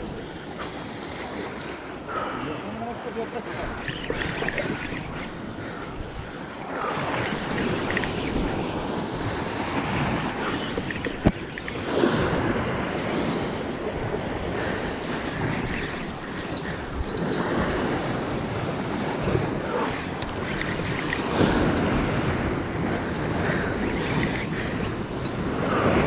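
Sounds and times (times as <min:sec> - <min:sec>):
waves washing against rocks: 0:00.0 - 0:26.0
wind buffeting microphone: 0:03.0 - 0:26.0.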